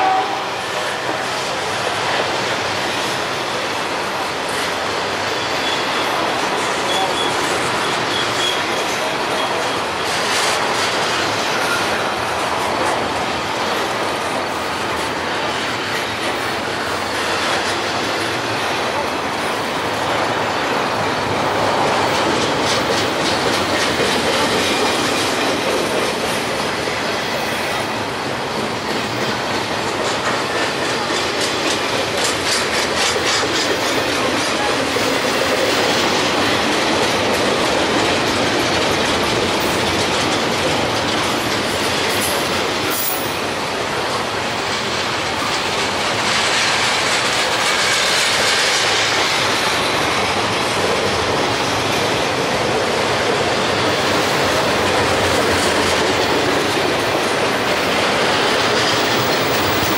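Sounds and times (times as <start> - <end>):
freight train rolling past: 0.0 - 59.9
train cars clicking over rail joints: 1.0 - 59.9
high squeal: 5.3 - 9.9.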